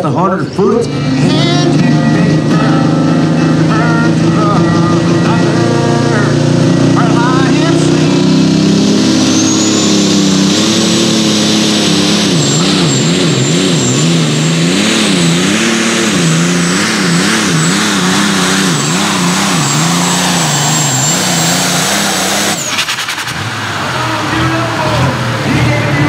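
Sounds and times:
tractor diesel engine at full power: 0:00.0 - 0:26.0
high turbo whistle: 0:08.0 - 0:23.4.

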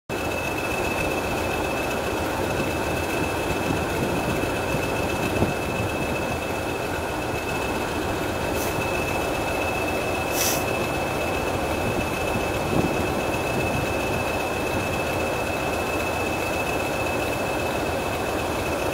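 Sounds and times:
diesel locomotive engine running: 0:00.1 - 0:18.9
brief hisses: 0:08.6 - 0:08.8, 0:10.3 - 0:10.8.

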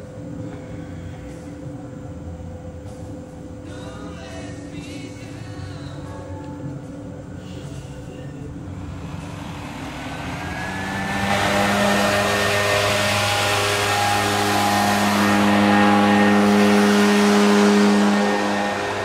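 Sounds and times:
leaf blower engine revving: 0:08.8 - 0:19.0.

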